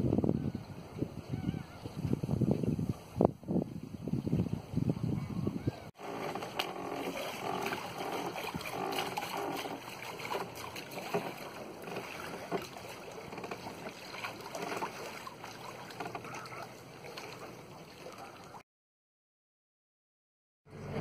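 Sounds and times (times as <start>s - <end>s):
water splashing along a boat hull: 5.9s - 18.6s.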